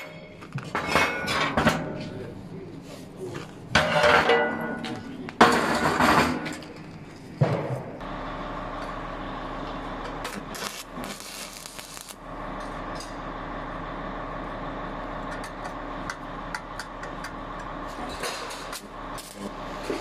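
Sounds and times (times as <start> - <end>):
welding arc crackling: 8.0 - 13.6, 18.6 - 20.0
welding set humming: 8.0 - 20.0.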